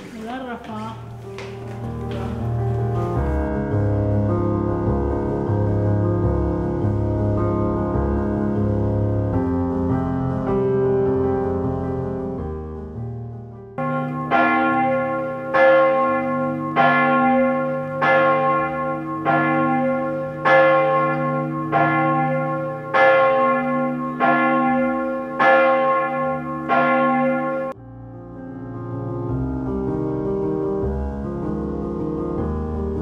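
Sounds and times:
large church bell tolling: 2.3s - 11.5s, 13.8s - 29.5s.

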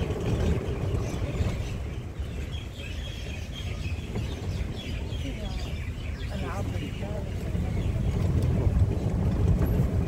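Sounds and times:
cart rolling on pavement: 0.0s - 10.0s
wind buffeting microphone: 0.0s - 10.0s.

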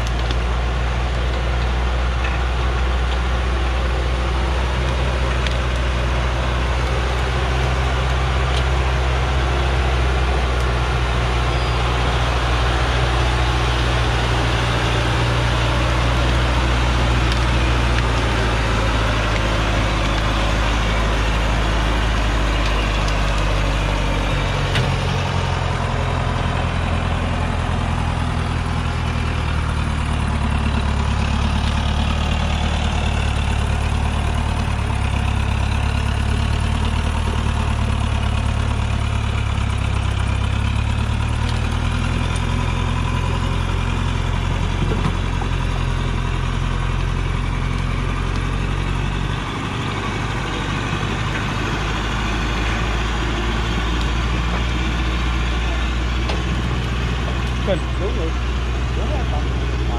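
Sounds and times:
truck diesel engine under load: 0.0s - 59.9s.

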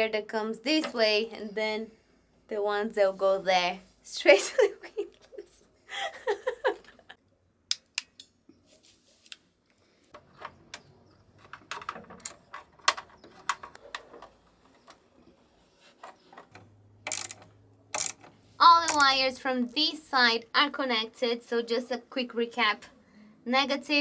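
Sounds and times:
tools and wires clicking: 7.7s - 8.4s, 10.1s - 15.3s, 15.9s - 19.2s.

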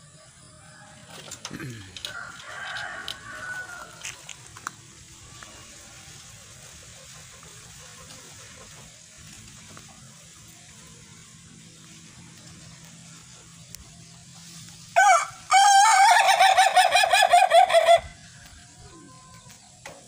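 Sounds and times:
rooster crowing: 2.0s - 4.2s, 15.0s - 19.2s.

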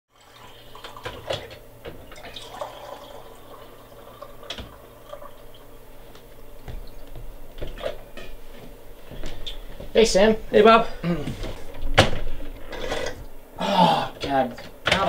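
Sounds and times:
coffee dripping and spurting: 0.1s - 5.7s.

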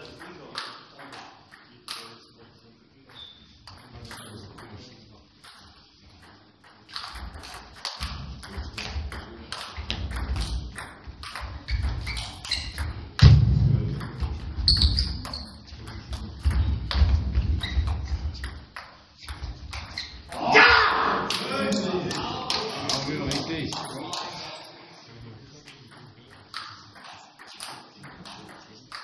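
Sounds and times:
heavy low thuds: 13.2s - 14.5s.

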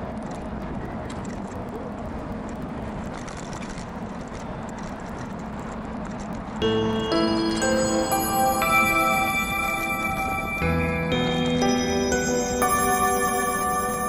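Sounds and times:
street traffic: 0.0s - 14.0s
music: 6.6s - 14.0s.

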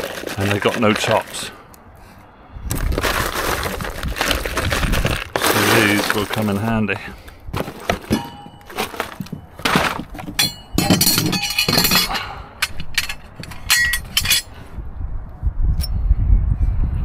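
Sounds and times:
metal rails knocking together: 7.7s - 14.5s
small metal tops clinking: 8.0s - 9.4s, 10.2s - 14.5s.

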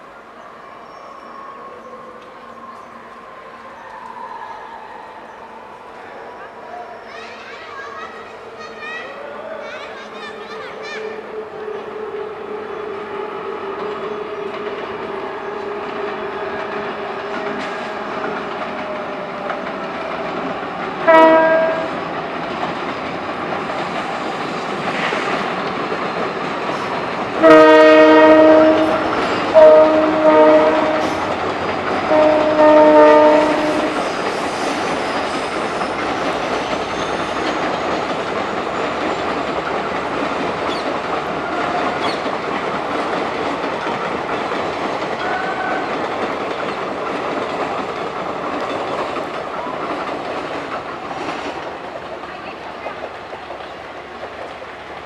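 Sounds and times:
train rumble and wheel clatter: 0.0s - 55.0s
locomotive horn blasts: 21.0s - 22.0s, 27.4s - 31.3s, 32.0s - 34.1s.

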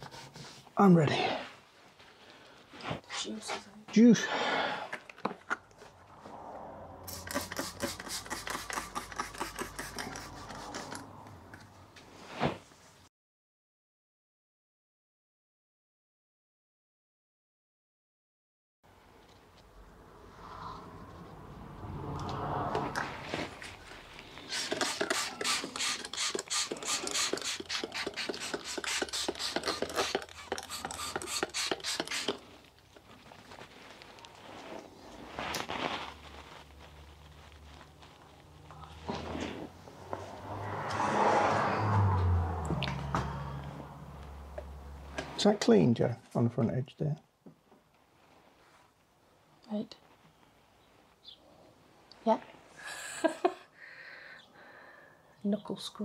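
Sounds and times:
fingers rubbing vinyl decal: 7.1s - 11.0s, 24.5s - 32.5s
hand rubbing on car paint: 7.1s - 11.2s.

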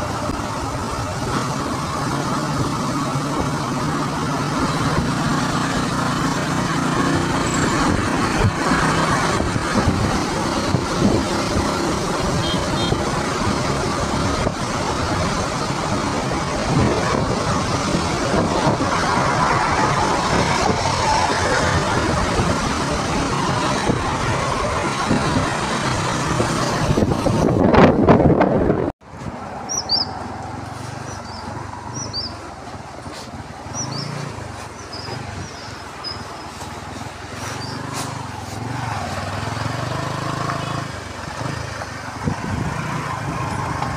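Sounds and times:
wind buffeting microphone: 0.0s - 12.4s, 13.0s - 29.5s, 41.4s - 43.9s
motorcycle running: 0.0s - 43.9s.

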